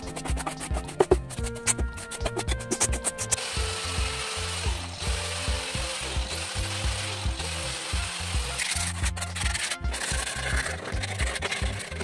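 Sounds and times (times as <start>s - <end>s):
angle grinder sanding wood: 0.0s - 12.0s
background music: 0.0s - 12.0s
sandpaper rubbed on wood: 0.0s - 12.0s.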